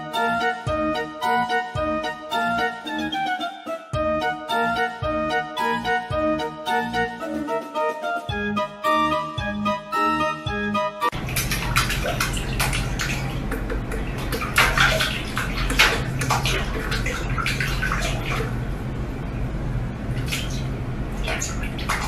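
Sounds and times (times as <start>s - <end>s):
keyboard music: 0.0s - 11.2s
water splashing in sink: 11.1s - 18.7s, 20.1s - 22.0s
steady low hum: 11.1s - 22.0s.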